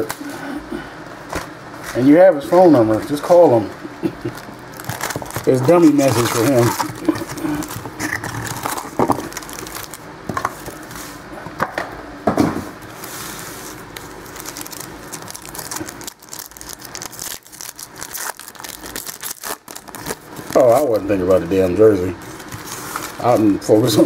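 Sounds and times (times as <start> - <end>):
pack wrappers rustling and crinkling: 4.2 - 11.0, 13.0 - 21.3, 22.2 - 24.0.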